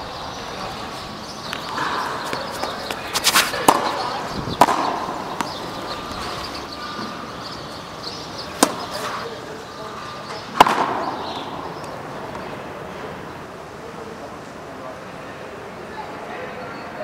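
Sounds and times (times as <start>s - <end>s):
ball smacking wall and racket: 1.5s - 7.2s, 8.5s - 9.3s, 10.4s - 12.5s.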